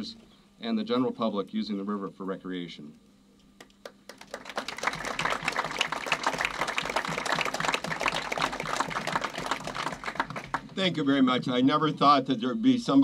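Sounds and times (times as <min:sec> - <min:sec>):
crowd applauding: 0:03.8 - 0:11.0.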